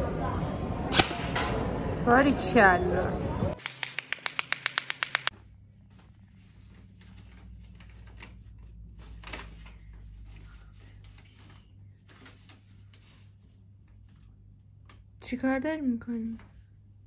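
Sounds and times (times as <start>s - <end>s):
paper rustling: 3.6s - 14.2s.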